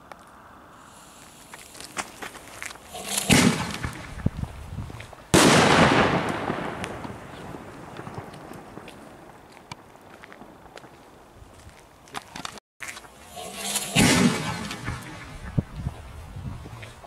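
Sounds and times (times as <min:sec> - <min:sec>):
firework shell bursting bang: 0:02.9 - 0:04.2, 0:13.3 - 0:15.6
firework launch thump: 0:02.9 - 0:04.4, 0:13.4 - 0:15.7.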